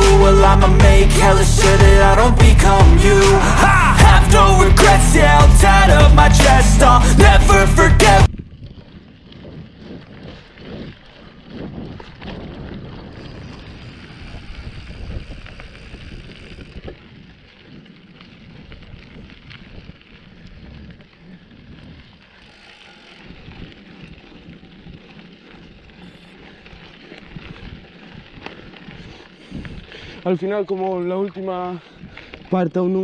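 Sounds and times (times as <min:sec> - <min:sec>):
bike tyres on dirt trail: 0:00.0 - 0:33.0
wind buffeting microphone: 0:08.3 - 0:33.0.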